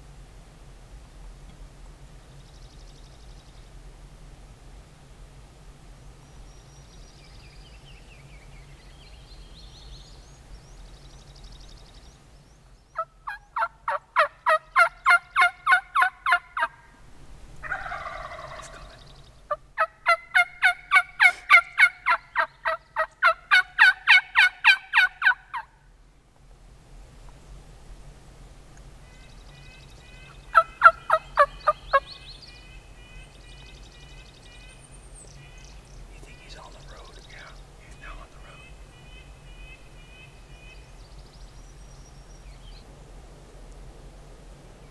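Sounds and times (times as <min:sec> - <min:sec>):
faint songbird song: 0:01.4 - 0:04.1, 0:06.0 - 0:26.1, 0:28.7 - 0:43.9
rough turkey call: 0:13.0 - 0:16.9, 0:17.6 - 0:25.8, 0:29.0 - 0:34.8
turkey yelping: 0:13.0 - 0:16.9, 0:17.6 - 0:18.9, 0:19.5 - 0:25.7, 0:30.2 - 0:32.2.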